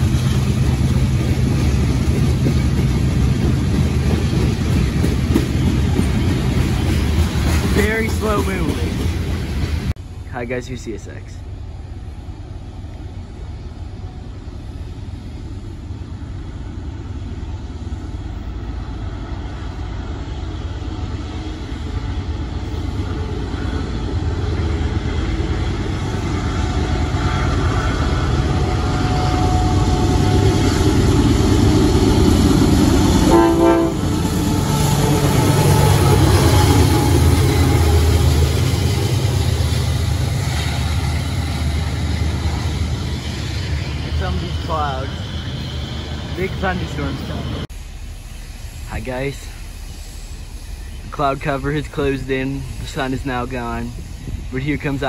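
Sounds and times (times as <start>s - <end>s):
diesel locomotive engine rumble: 0.0s - 55.0s
train horn blast: 28.6s - 30.9s, 33.1s - 38.1s.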